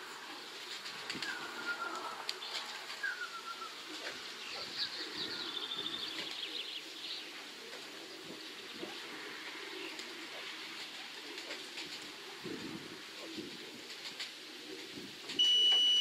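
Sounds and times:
low cooing murmur: 0:00.0 - 0:06.7
pigeon wings flapping: 0:00.4 - 0:03.3, 0:07.7 - 0:15.4.

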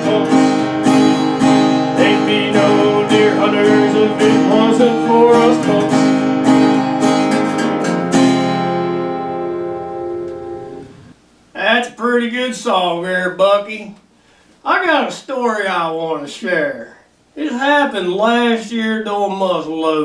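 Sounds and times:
acoustic guitar strumming: 0:00.0 - 0:11.2.

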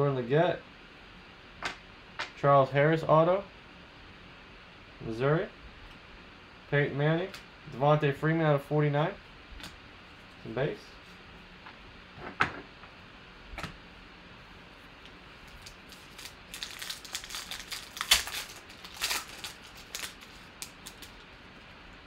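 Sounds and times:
foil wrapper tearing and crinkling: 0:15.4 - 0:21.6.

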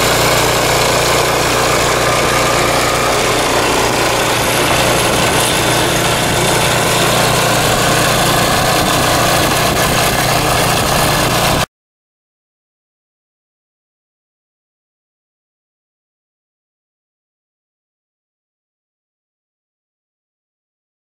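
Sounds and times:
tiller engine under load: 0:00.0 - 0:11.7.

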